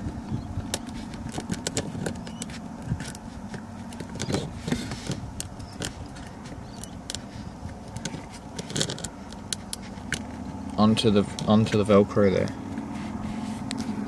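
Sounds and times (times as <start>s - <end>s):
low steady rumble: 0.0s - 14.0s.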